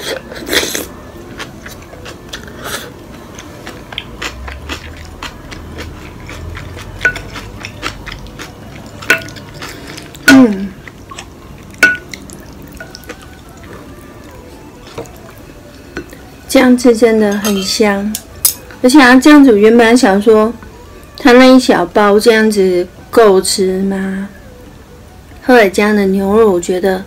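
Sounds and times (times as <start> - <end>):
wet mouth eating sounds: 0.0 - 15.4.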